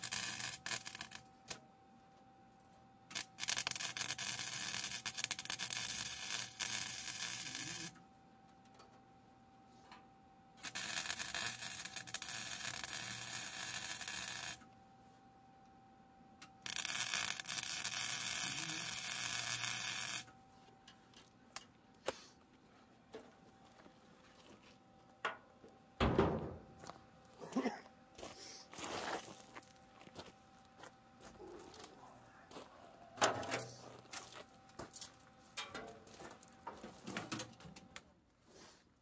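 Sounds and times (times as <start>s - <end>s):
welder arc sizzling: 0.0s - 1.3s, 3.1s - 8.0s, 10.6s - 14.7s, 16.5s - 20.3s
footsteps on gravel: 22.1s - 25.1s, 26.4s - 27.6s, 28.2s - 32.8s, 33.4s - 35.2s.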